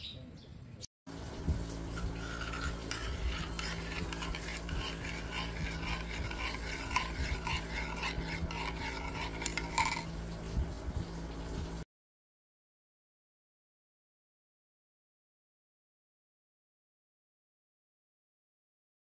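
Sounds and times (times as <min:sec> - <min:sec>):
spoon clinking in ceramic cup: 0:02.2 - 0:10.2.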